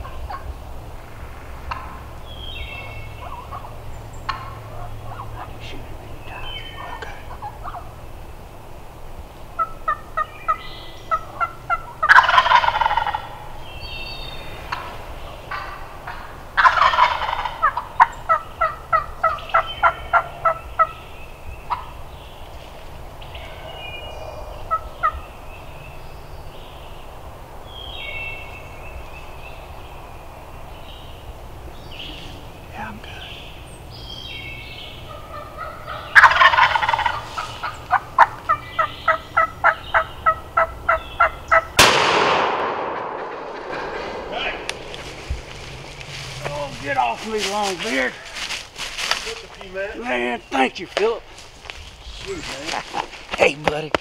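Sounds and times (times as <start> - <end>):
turkey gobbling: 0.0 - 0.5, 1.6 - 2.4, 3.1 - 5.8, 6.4 - 8.1, 9.6 - 21.1, 21.7 - 22.2, 23.3 - 25.3, 34.8 - 42.0
turkey yelping notes: 6.4 - 8.0, 9.6 - 13.5, 14.6 - 21.1, 21.7 - 22.0, 34.9 - 41.8.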